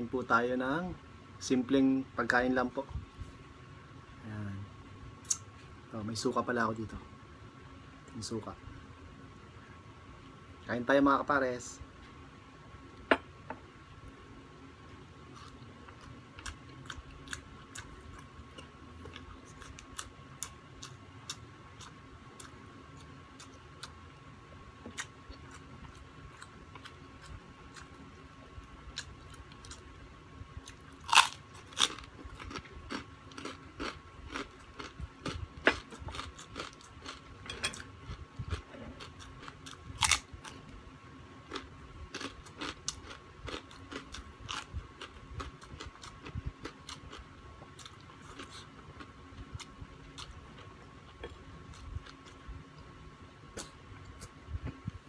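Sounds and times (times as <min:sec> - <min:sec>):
faint steady hum: 0:00.0 - 0:55.0
man chewing food: 0:15.3 - 0:24.0, 0:24.8 - 0:30.0, 0:30.6 - 0:40.7, 0:41.4 - 0:55.0
loud crunching of crispy food: 0:30.7 - 0:37.3, 0:38.0 - 0:40.6, 0:41.5 - 0:48.7.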